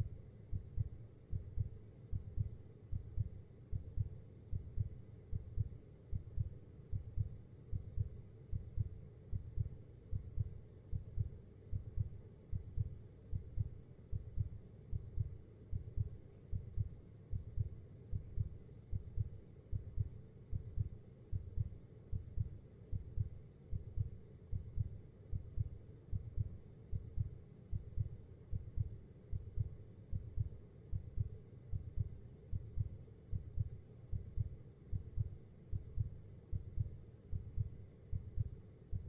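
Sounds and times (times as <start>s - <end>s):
heartbeat thumps: 0.5s - 39.0s.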